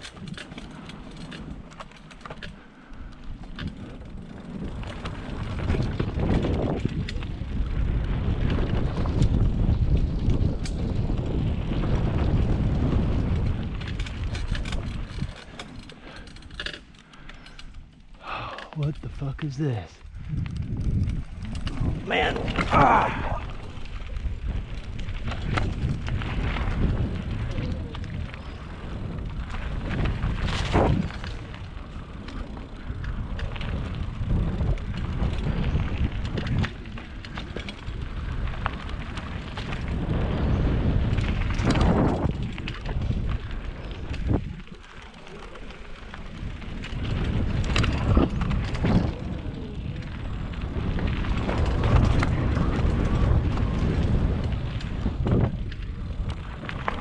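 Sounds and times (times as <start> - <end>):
bike trail rumble: 0.0 - 57.0
wind buffeting microphone: 0.0 - 57.0.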